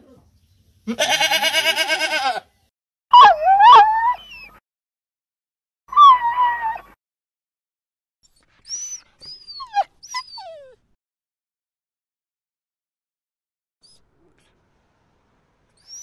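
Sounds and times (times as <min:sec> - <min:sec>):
dog whining: 0:03.1 - 0:04.6, 0:05.9 - 0:07.0, 0:08.7 - 0:10.9, 0:15.8 - 0:16.0
dog squeaking: 0:08.7 - 0:10.8, 0:15.8 - 0:16.0.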